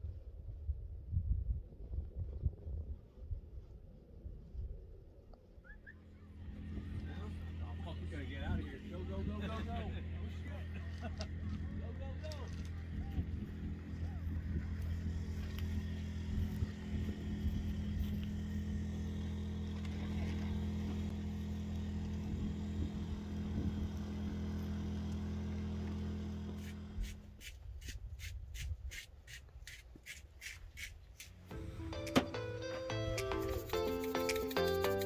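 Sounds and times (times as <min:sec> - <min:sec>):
engine running with low hum: 0:04.9 - 0:27.5, 0:31.1 - 0:35.0.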